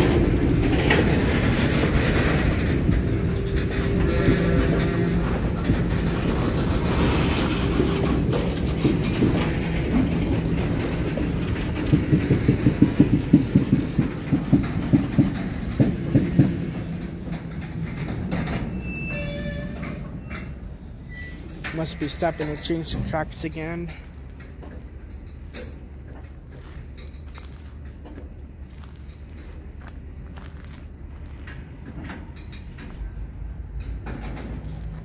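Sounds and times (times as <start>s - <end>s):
freight train rumble: 0.0s - 35.0s
wheel clicks over rail joints: 0.0s - 35.0s
high brake squeal: 18.7s - 22.7s.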